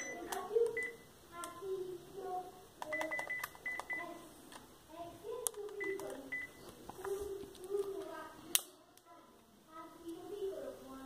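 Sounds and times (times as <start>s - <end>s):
phone key beeps: 0.0s - 1.0s, 2.8s - 4.1s, 5.8s - 6.6s
button clicks: 2.8s - 4.0s.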